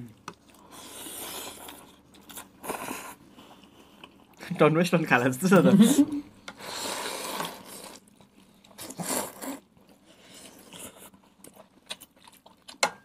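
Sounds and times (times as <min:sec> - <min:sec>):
people slurping noodles: 0:00.6 - 0:03.9, 0:05.8 - 0:11.2.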